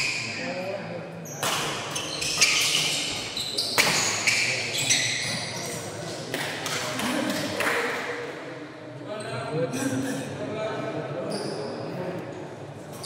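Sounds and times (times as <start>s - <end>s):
sneakers squeaking on court: 1.2s - 6.0s.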